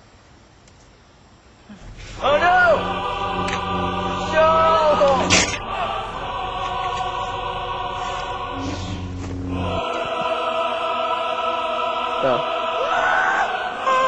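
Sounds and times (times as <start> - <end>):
choir singing held chords: 1.8 - 14.0.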